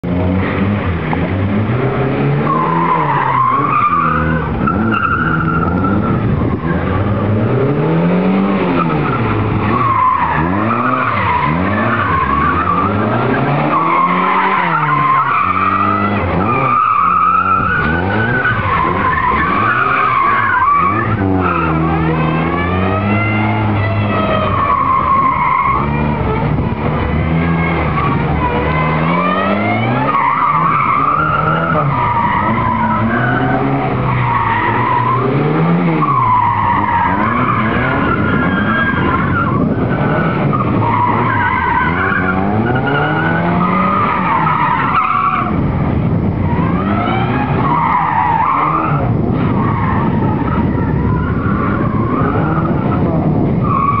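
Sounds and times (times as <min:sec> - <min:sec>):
car engine revving: 0:00.0 - 0:54.0
tyres squealing: 0:08.8 - 0:45.6.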